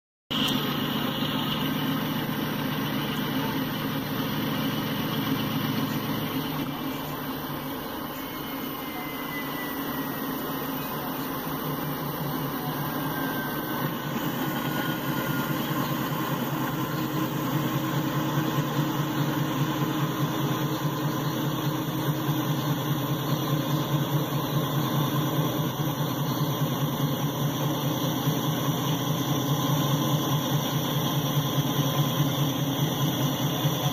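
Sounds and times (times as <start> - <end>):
diesel locomotives droning: 0.3 - 33.9
faint falling squeal: 5.1 - 17.4.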